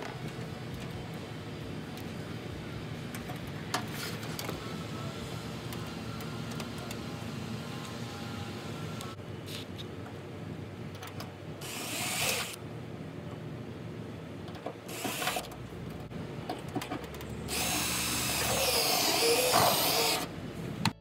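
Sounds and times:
cordless drill running: 11.6s - 12.6s, 17.5s - 20.3s.

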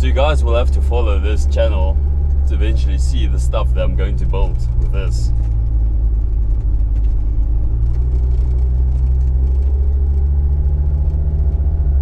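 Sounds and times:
diesel engine rumble: 0.0s - 12.0s
road noise: 0.0s - 12.0s.

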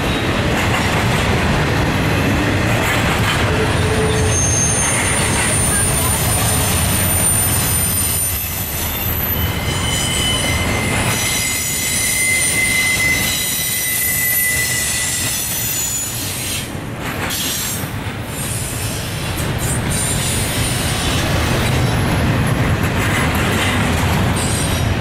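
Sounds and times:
steel wheels rumbling on rail: 0.0s - 25.0s
high wheel squeals: 3.6s - 16.6s.

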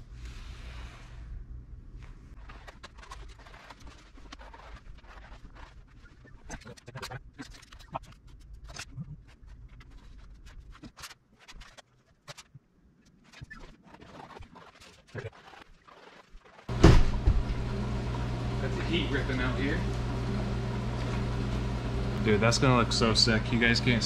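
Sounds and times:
vinyl sheet crinkling and rustling: 2.3s - 12.5s
steady low hum: 16.7s - 24.0s.

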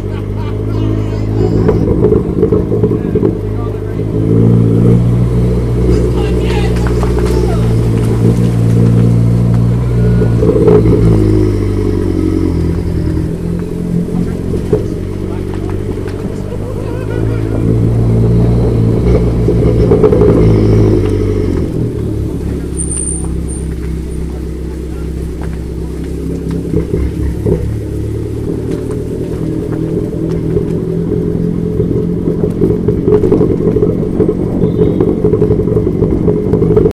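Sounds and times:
car engine pulling under load: 0.0s - 37.0s.

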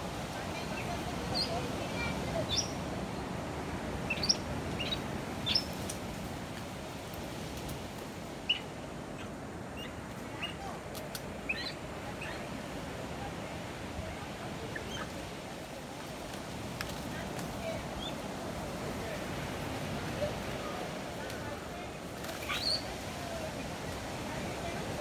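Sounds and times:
short high chirping calls: 22.4s - 22.9s.

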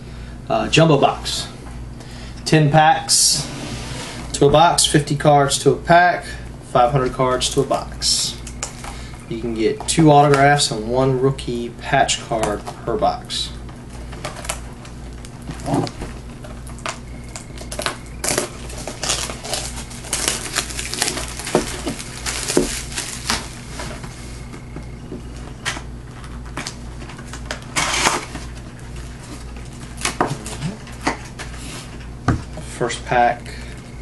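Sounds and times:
plastic shrink-wrap crinkling: 13.9s - 24.6s, 25.3s - 32.0s.

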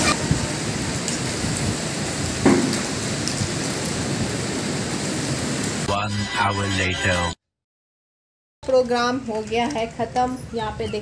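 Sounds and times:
falling rain: 0.0s - 5.9s
strong wind through trees: 0.0s - 5.9s.

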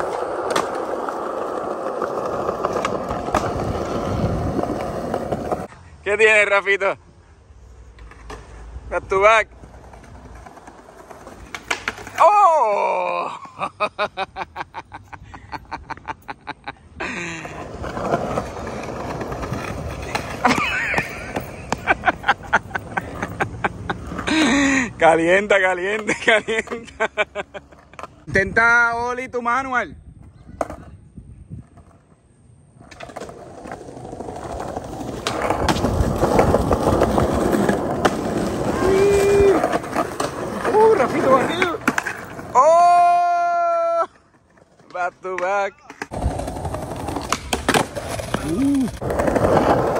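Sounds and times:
skateboard wheels rolling on tiles: 0.0s - 5.7s, 9.5s - 14.2s, 15.5s - 24.8s, 31.6s - 49.9s
man laughing: 12.3s - 17.8s, 20.0s - 25.0s, 26.0s - 28.2s.

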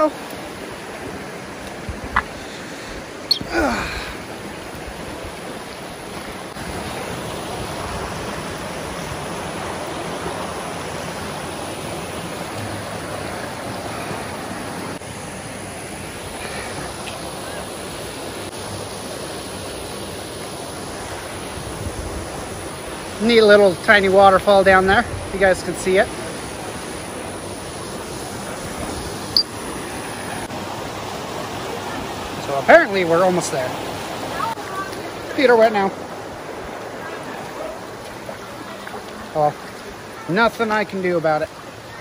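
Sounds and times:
creek water rushing: 0.0s - 42.0s.

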